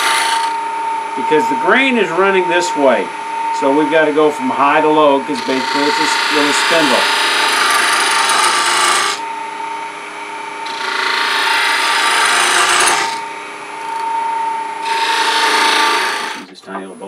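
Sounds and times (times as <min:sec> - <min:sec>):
gouge cutting wood: 0:00.0 - 0:00.6, 0:05.3 - 0:09.2, 0:10.6 - 0:14.1, 0:14.8 - 0:16.5
lathe whine: 0:00.0 - 0:17.0.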